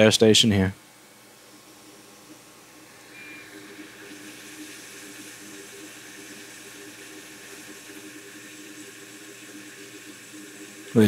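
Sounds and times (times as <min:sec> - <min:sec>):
faint hum: 0:00.0 - 0:11.0
hot air station hissing: 0:02.9 - 0:11.0.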